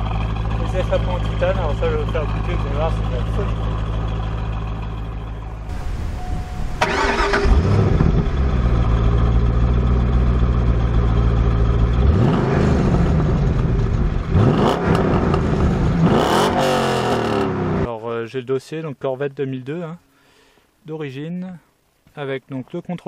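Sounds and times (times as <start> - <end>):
car engine idling and revving: 0.0 - 17.9.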